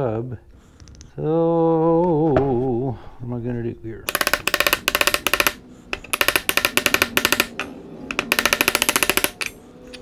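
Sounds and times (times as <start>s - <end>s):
hammer tapping on metal: 4.1s - 9.6s.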